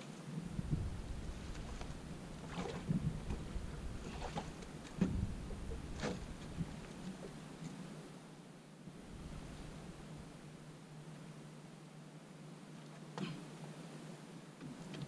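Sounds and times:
low rumble: 0.5s - 7.3s
water splashing at shoreline: 1.0s - 7.6s.

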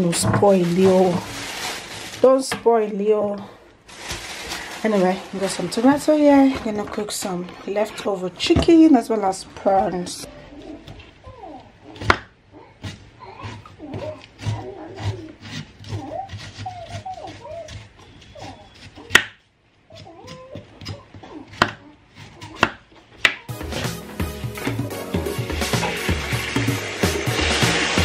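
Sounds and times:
music: 23.5s - 28.0s.

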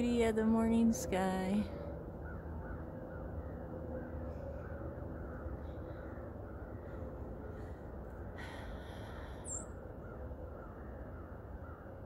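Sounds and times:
steady low rumble: 0.0s - 12.0s
crows cawing: 8.4s - 12.0s.

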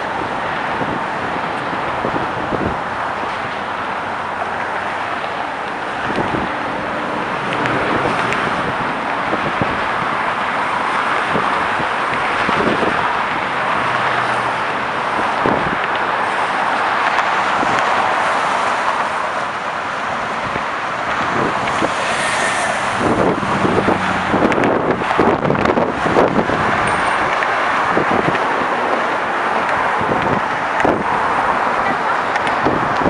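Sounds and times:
road traffic passing: 0.0s - 33.0s.

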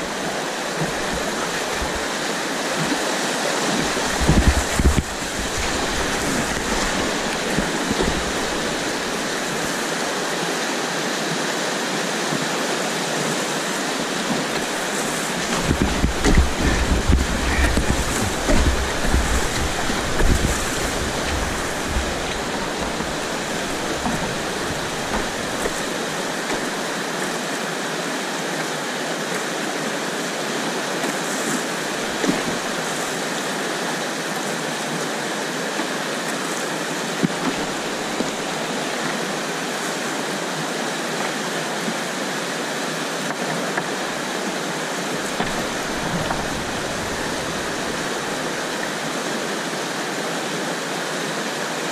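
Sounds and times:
whitewater rushing: 0.0s - 51.9s
wind buffeting microphone: 3.6s - 10.1s, 14.2s - 26.4s.

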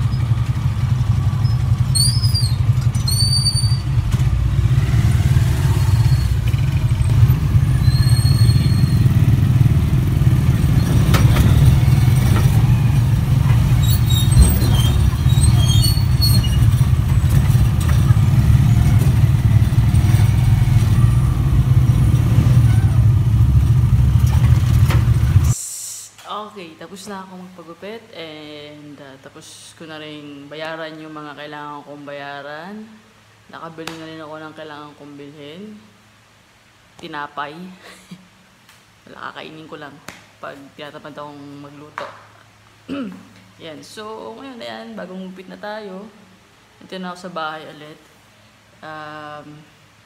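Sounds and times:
high squeals: 0.0s - 4.1s, 5.4s - 9.6s, 10.2s - 23.6s
motorcycle engine droning: 0.0s - 25.6s
road rumble: 0.0s - 25.6s.

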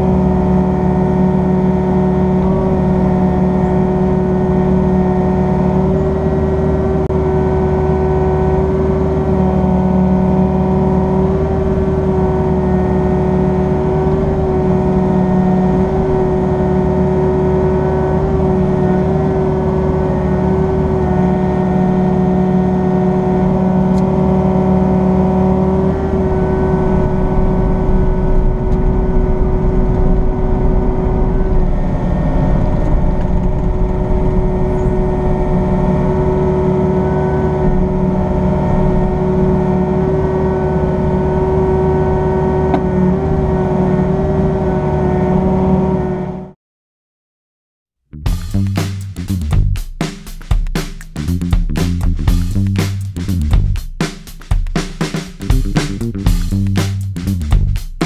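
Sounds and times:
steady whine: 0.0s - 43.1s
excavator engine and hydraulics: 0.0s - 46.6s.

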